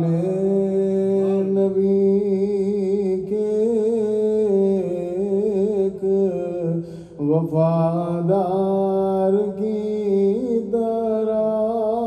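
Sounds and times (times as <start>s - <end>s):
man singing melismatic melody: 0.0s - 12.0s.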